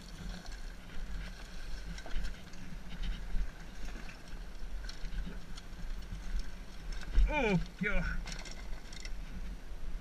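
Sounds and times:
clicks and knocks of stones: 0.0s - 9.2s.

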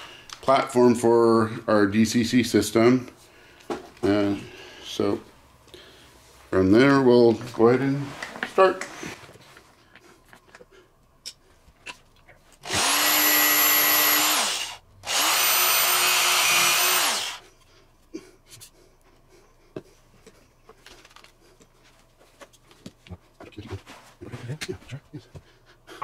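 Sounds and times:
power drill drilling into wood: 12.6s - 17.4s.

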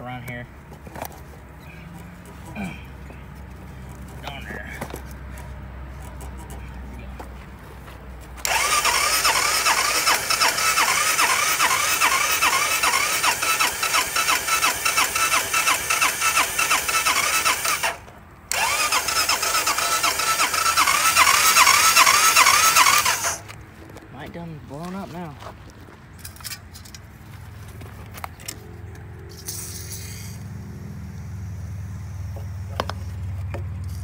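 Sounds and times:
electric starter cranking engine: 8.4s - 23.6s, 29.3s - 34.0s.

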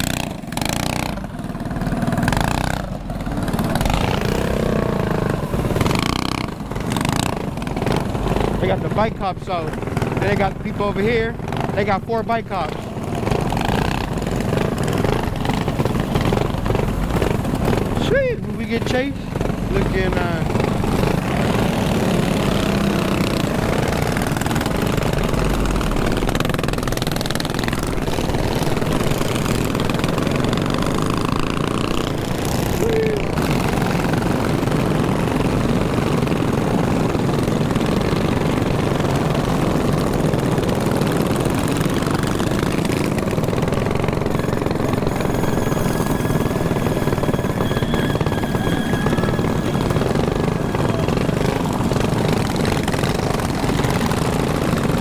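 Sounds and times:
mini bike engines running: 0.0s - 55.0s.

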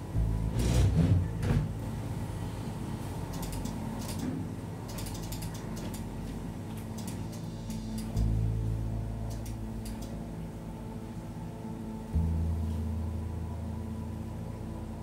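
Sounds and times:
steady low hum: 0.0s - 15.0s
ratchet-like mechanical clicks: 3.3s - 4.3s, 4.9s - 6.1s, 6.8s - 8.3s, 9.3s - 10.2s.

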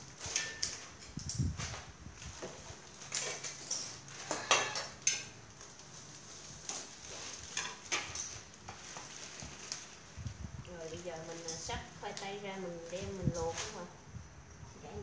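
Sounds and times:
steel bowls and trays clinking: 0.2s - 1.2s, 3.0s - 5.4s
plastic packaging crinkling: 5.6s - 12.2s.

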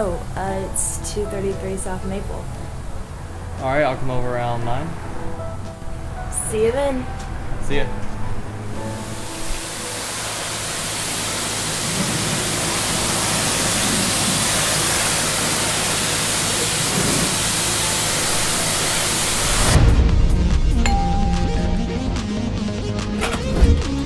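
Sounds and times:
high-pressure spray wand hissing: 9.1s - 19.7s.

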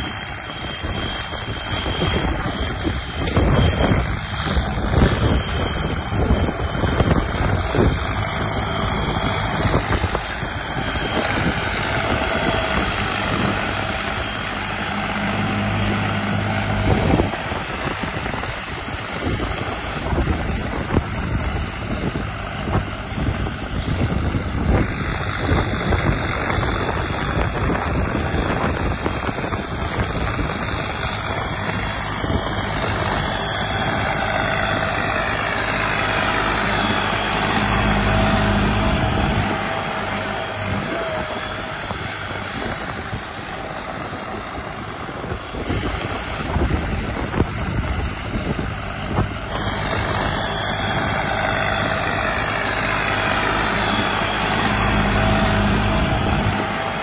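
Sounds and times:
tractor diesel engine under load: 0.0s - 57.0s
wind buffeting microphone: 0.0s - 57.0s.

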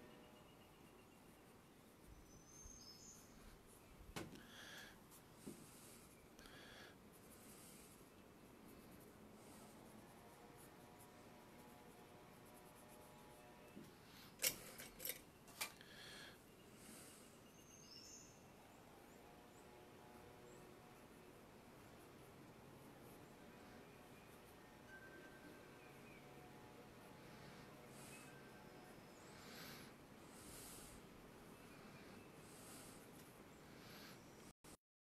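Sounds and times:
pencil scratching on paper: 4.6s - 13.8s
pencils clicking set down: 14.4s - 15.8s.

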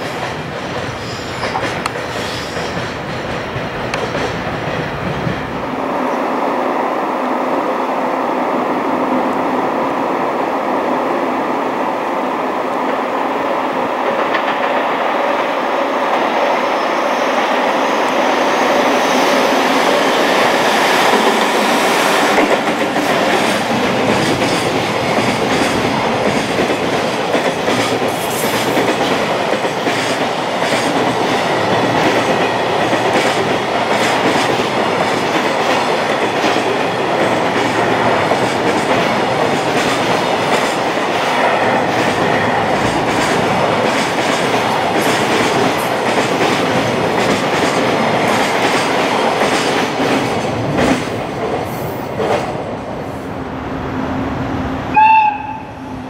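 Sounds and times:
clickety-clack of wheels on rail joints: 0.0s - 5.8s, 14.0s - 16.5s, 20.5s - 53.2s
freight train passing: 0.0s - 56.0s.

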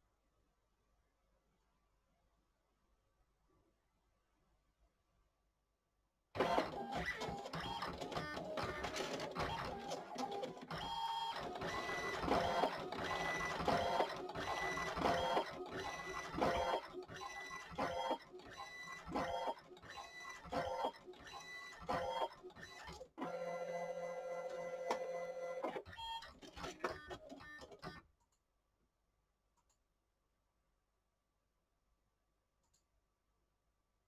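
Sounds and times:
printer mechanism whirring: 6.4s - 27.9s.

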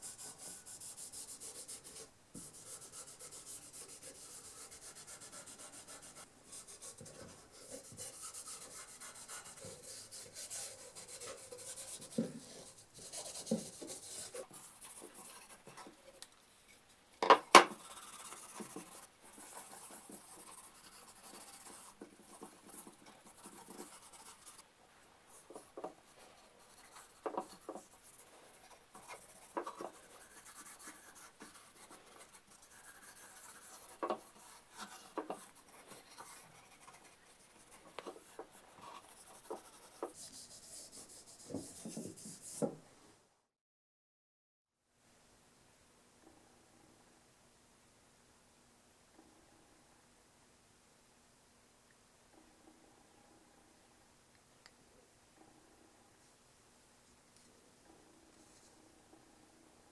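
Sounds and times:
cloth rubbing on wooden handle: 0.0s - 16.9s, 25.3s - 42.7s.

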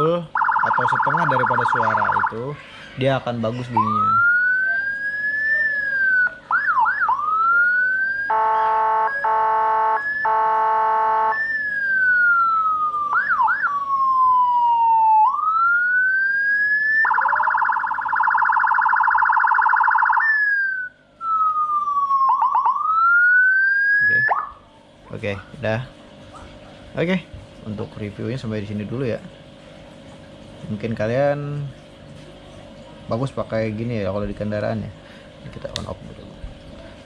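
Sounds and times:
siren wailing: 0.0s - 2.6s, 3.5s - 24.7s
siren yelp sweeps: 0.0s - 2.6s, 3.8s - 24.6s
harsh buzzing tone: 3.7s - 14.2s
short horn blasts: 8.3s - 11.5s.

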